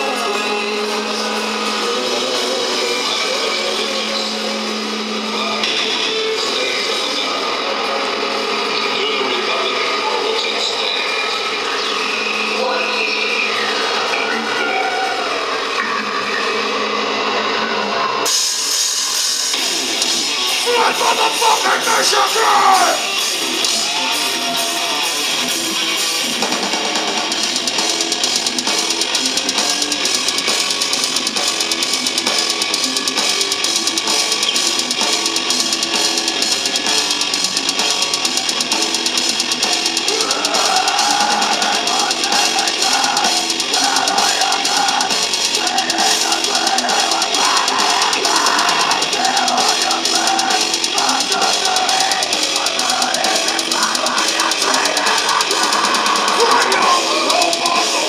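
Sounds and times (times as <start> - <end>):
live heavy rock music: 0.0 - 58.0
drums and cymbals: 18.2 - 58.0.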